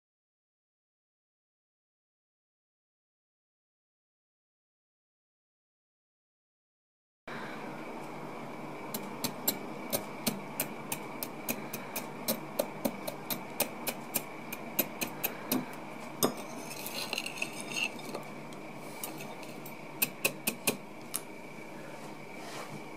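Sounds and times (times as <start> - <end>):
faint high whine: 7.3 - 22.9
fork scraping a plate: 16.2 - 18.3, 18.9 - 19.7.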